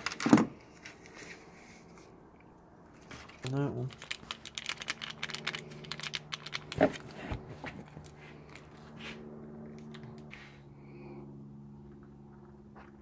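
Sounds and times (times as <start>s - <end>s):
foil packet crinkling: 0.0s - 0.5s, 3.2s - 8.7s
steady low hum: 4.4s - 13.0s.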